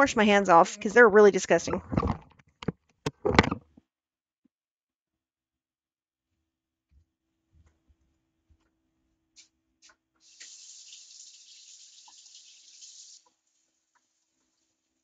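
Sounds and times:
faucet water running into sink: 0:10.2 - 0:15.0.

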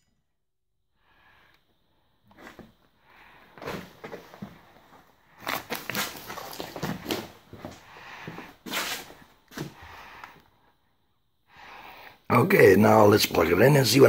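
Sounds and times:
handling rustles and knocks: 0:03.5 - 0:09.8
footsteps: 0:03.6 - 0:09.8.

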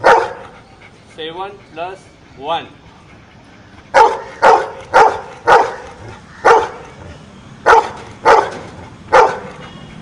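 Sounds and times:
dog barking: 0:00.0 - 0:00.5, 0:04.0 - 0:06.8, 0:07.6 - 0:09.6.

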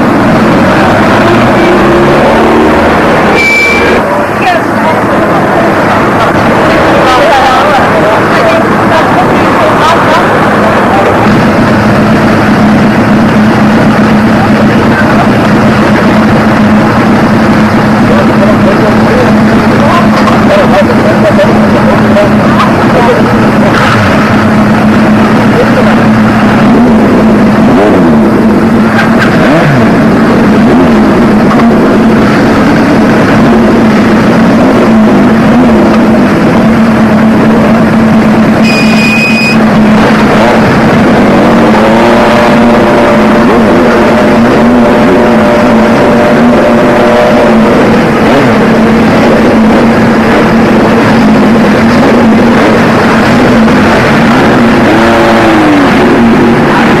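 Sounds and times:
motorcycle engines revving: 0:00.0 - 0:57.0
short high beep: 0:03.3 - 0:04.1, 0:38.6 - 0:39.7.

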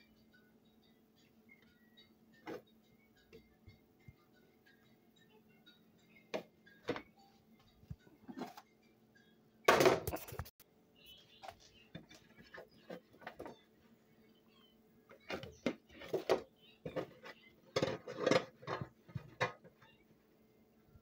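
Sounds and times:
plates clattering: 0:15.3 - 0:19.7.

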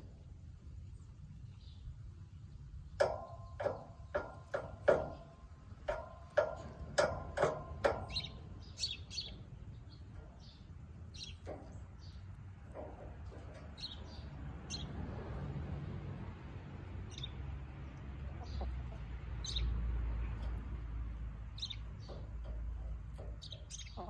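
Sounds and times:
hen pecking ground: 0:00.0 - 0:24.0
high bird chirps: 0:07.9 - 0:12.3, 0:21.5 - 0:22.3, 0:23.3 - 0:24.0.

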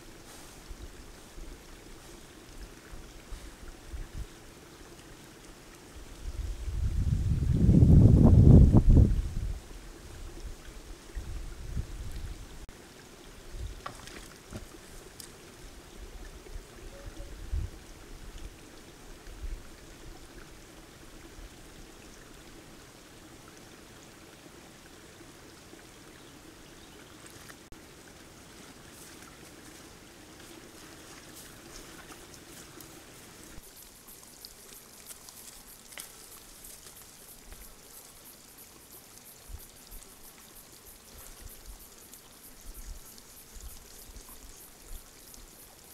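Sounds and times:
outdoor ambience hiss: 0:00.0 - 0:45.9.

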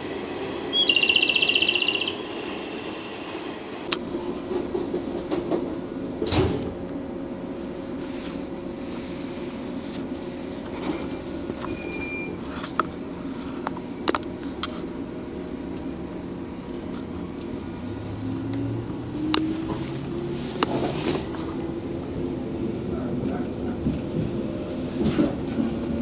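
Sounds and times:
rising train motor tone: 0:00.0 - 0:04.4
train equipment hum: 0:00.0 - 0:26.0
sliding door thud: 0:06.2 - 0:06.8.

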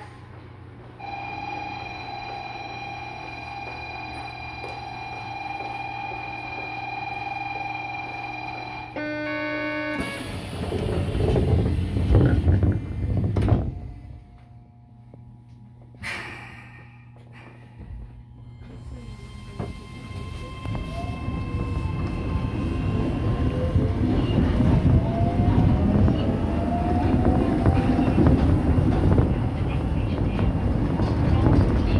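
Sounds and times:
platform warning tone: 0:01.0 - 0:10.3
sliding doors shutting: 0:10.0 - 0:13.9.

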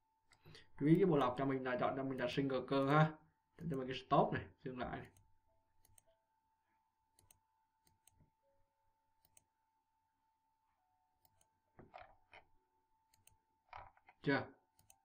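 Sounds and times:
faint steady hum: 0:00.0 - 0:15.0
computer mouse clicks: 0:05.0 - 0:06.1, 0:07.2 - 0:08.3, 0:09.2 - 0:09.5, 0:11.2 - 0:12.5, 0:13.1 - 0:14.2, 0:14.8 - 0:15.0.

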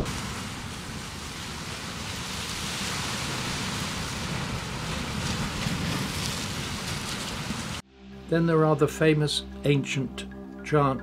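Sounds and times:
surf breaking on rocky shore: 0:00.0 - 0:07.8.

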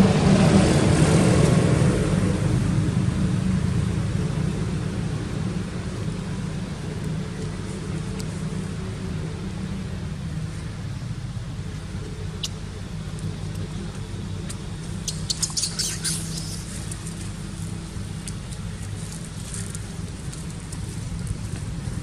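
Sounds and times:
vehicle engine idling: 0:02.2 - 0:22.0
footsteps crackling on dry leaves: 0:14.8 - 0:22.0.

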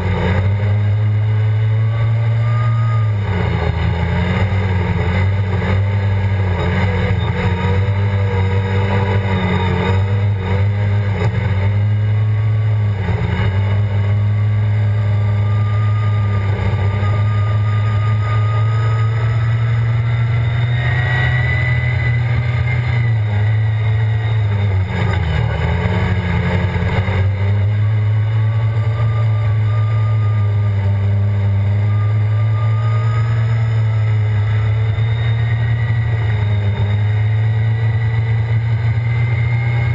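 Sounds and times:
snowmobile engine running hard: 0:00.0 - 0:39.9.

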